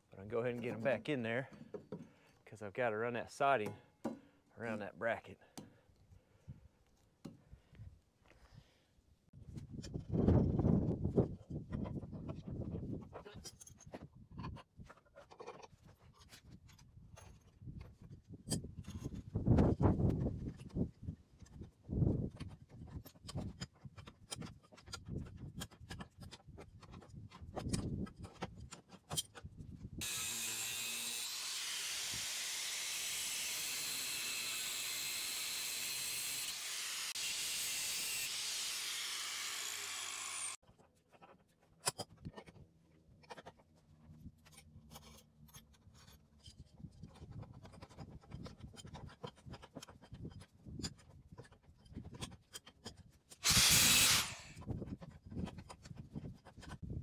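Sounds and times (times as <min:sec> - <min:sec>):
loud steady hiss: 0:53.4 - 0:54.5.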